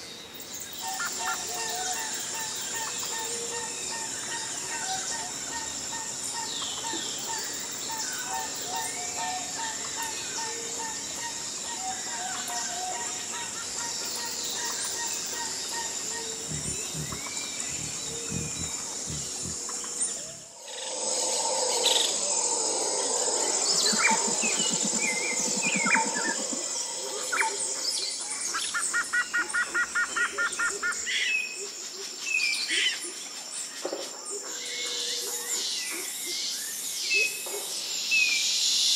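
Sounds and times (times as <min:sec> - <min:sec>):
high insect drone: 0:00.0 - 0:33.8
birds chirping and whistling: 0:14.1 - 0:20.5, 0:23.4 - 0:27.5
bird rapid chirps: 0:16.4 - 0:20.4.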